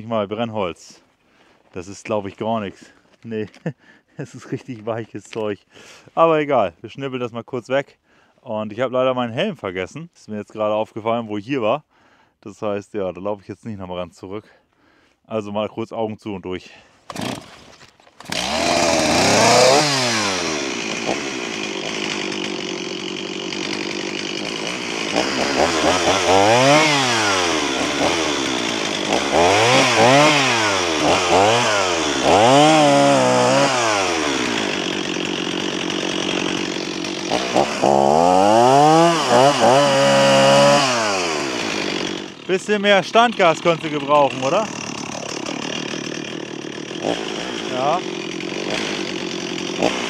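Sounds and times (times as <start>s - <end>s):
chainsaw revving and idling: 17.1s - 50.0s.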